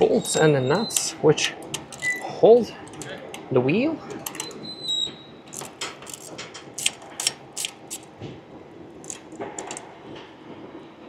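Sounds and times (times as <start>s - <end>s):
hand tools clicking on bolts: 5.5s - 8.1s, 9.0s - 9.8s.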